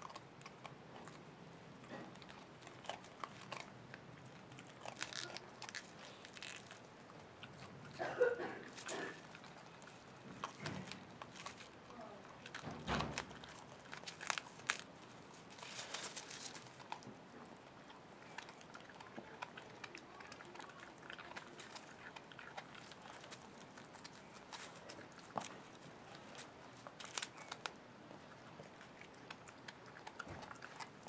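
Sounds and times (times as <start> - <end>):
puppy crunching vegetables: 0.0 - 31.0
rustling of leaves and twigs: 4.6 - 7.2, 8.6 - 17.0, 19.8 - 27.8.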